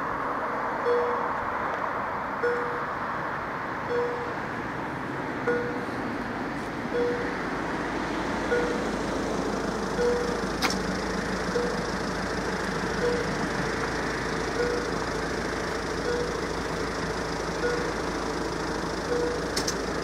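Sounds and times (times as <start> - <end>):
road noise: 0.0 - 20.0
level-crossing warning bell: 0.8 - 1.3, 2.4 - 3.0, 3.9 - 4.4, 5.4 - 5.9, 6.9 - 7.4, 8.5 - 8.9, 9.8 - 20.0
sharp click: 10.6 - 10.8, 19.5 - 19.8.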